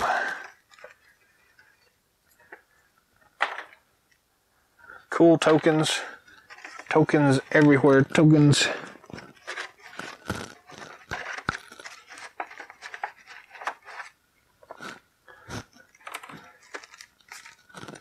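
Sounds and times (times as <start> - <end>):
cardboard pieces clicking and rustling: 0.0 - 1.8, 5.4 - 15.0, 15.6 - 18.0.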